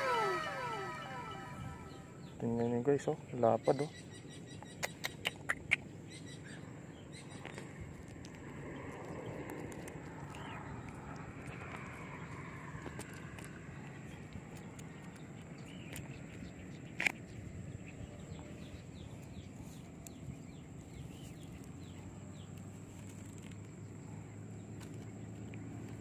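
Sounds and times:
faint outdoor background: 0:00.0 - 0:26.0
small birds chirping: 0:08.8 - 0:12.4, 0:13.4 - 0:26.0.

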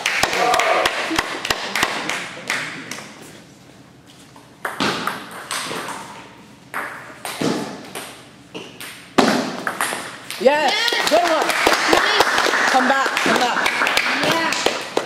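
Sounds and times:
table tennis ball bouncing: 0:04.6 - 0:11.4.

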